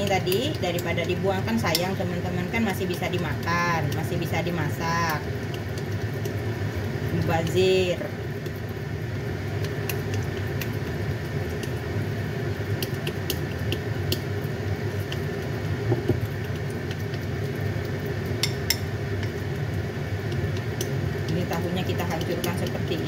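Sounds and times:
spoon clicking and scraping bowl: 18.4s - 19.4s.

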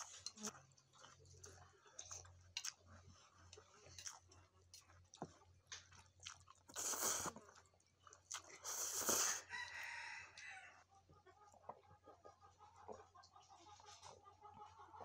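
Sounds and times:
wet mouth clicks and chewing: 0.0s - 9.4s
noodle slurps: 6.7s - 7.4s, 8.6s - 9.4s.

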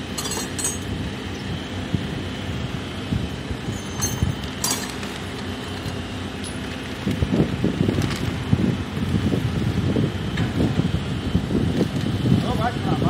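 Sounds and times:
crane engine running: 0.0s - 13.0s
sharp metallic clinks: 0.1s - 0.9s, 3.7s - 5.0s.

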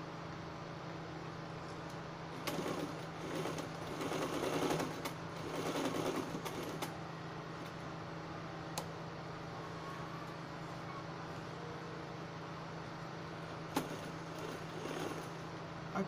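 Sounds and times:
sewing machine stitching: 2.4s - 6.9s, 13.7s - 15.4s.

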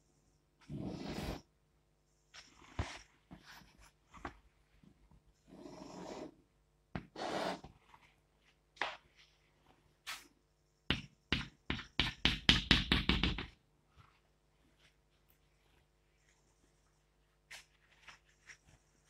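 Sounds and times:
chalk scratching on chalkboard: 0.7s - 1.4s, 5.5s - 6.4s, 7.0s - 7.7s
chalk tapping on chalkboard: 10.9s - 13.6s.

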